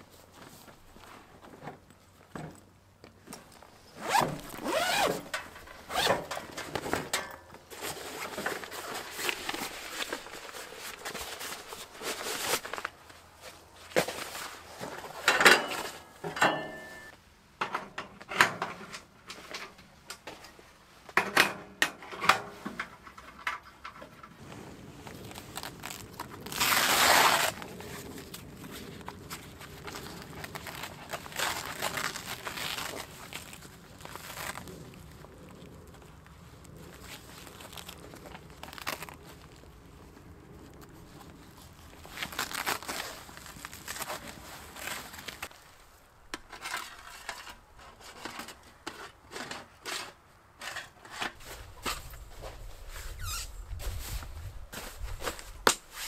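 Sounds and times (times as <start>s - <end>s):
zipper rasping: 4.0s - 5.3s, 5.9s - 6.1s, 25.3s - 27.6s
fabric rustling: 4.0s - 6.1s, 7.7s - 14.9s, 24.4s - 35.2s, 36.0s - 45.7s.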